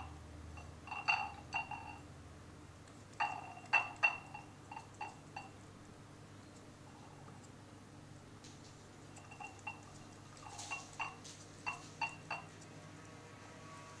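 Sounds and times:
glass bowl clinking: 0:00.0 - 0:02.1, 0:03.2 - 0:05.6, 0:09.1 - 0:12.6
cat eating dry kibble: 0:08.5 - 0:12.8.

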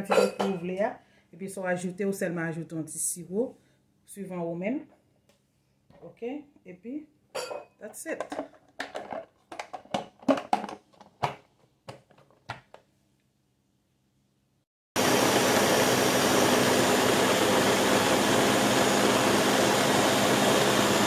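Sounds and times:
blender running: 0:15.0 - 0:21.0.

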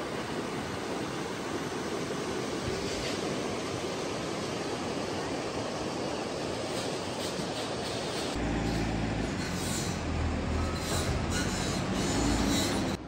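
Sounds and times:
excavator engine rumble: 0:08.4 - 0:13.0.

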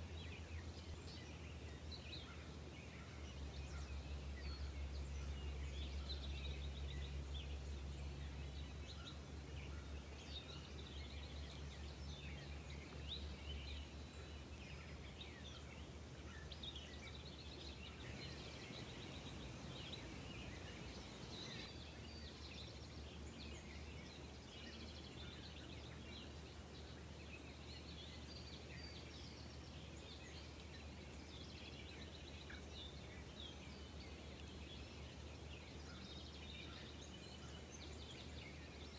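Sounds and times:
steady low hum: 0:00.0 - 0:21.9
small birds chirping: 0:00.0 - 0:38.9.

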